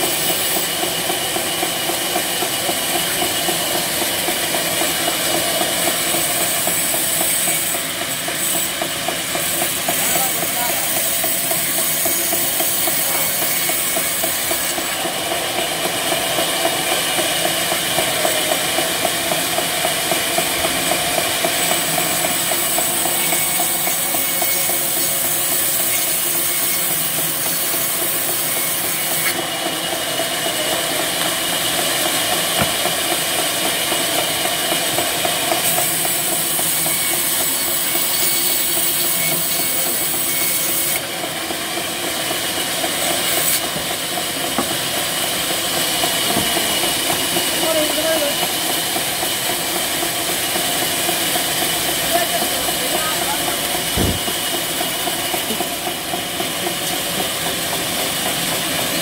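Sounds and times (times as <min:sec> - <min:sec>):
band saw machine drone: 0:00.0 - 0:59.0
saw blade hissing in wood: 0:05.9 - 0:14.9, 0:21.7 - 0:29.4, 0:35.5 - 0:41.1.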